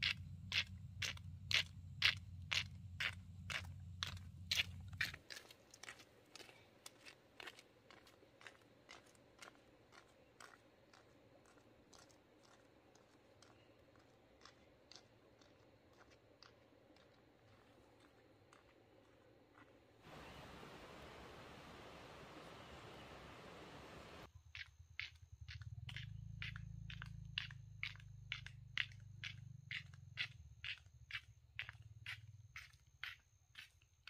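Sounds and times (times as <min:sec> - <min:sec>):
footsteps on gravel: 0:00.6 - 0:20.2.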